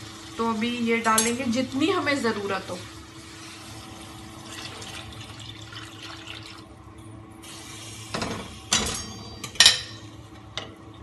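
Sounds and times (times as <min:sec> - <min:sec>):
metal bowl clanking on stove grate: 0:01.0 - 0:01.5
water pouring into a pot: 0:02.4 - 0:06.8.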